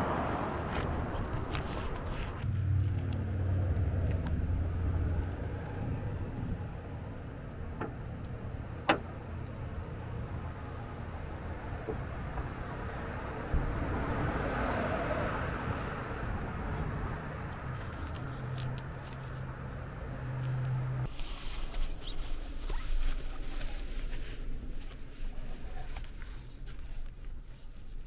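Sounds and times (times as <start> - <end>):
fabric rustling: 21.1 - 28.0.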